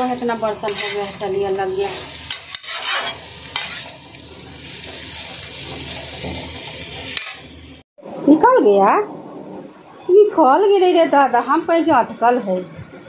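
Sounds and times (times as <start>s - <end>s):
vegetables sizzling in oil: 0.0s - 7.8s
spatula scraping metal pan: 0.6s - 4.0s.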